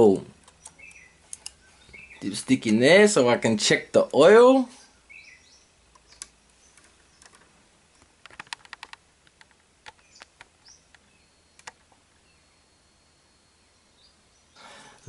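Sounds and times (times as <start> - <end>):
plastic parts clicking: 8.2 - 11.0.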